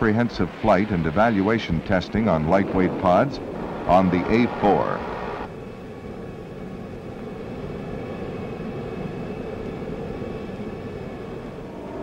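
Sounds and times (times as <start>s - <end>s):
jet engine rushing with whine: 0.0s - 12.0s.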